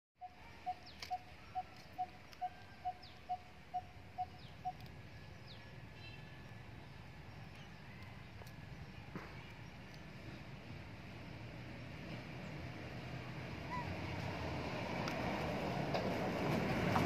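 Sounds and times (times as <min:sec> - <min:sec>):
faint high bird chirps: 0:00.2 - 0:10.4.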